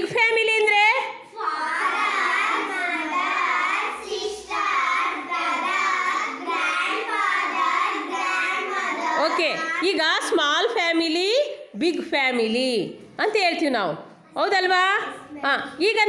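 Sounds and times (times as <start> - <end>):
children chanting in unison: 1.3 - 9.8.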